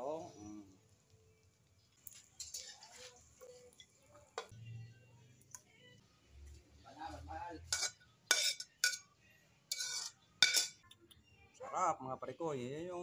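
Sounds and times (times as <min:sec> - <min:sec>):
metal utensil clicking on wok: 0:02.4 - 0:02.8, 0:07.7 - 0:09.1, 0:09.7 - 0:11.0.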